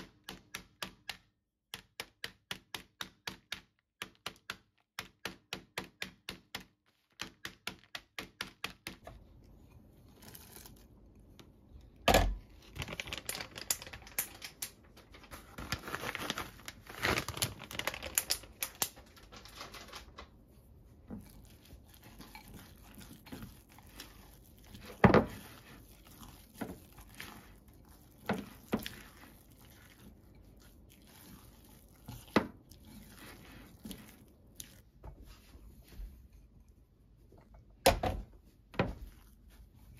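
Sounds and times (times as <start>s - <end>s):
plastic bag crinkling: 12.6s - 20.4s
spatula stirring in glass bowl: 20.4s - 36.7s.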